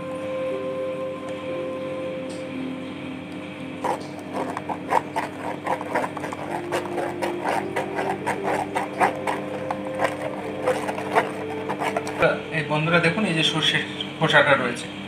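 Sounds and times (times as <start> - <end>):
metallic scraping in a strainer: 3.8 - 12.3.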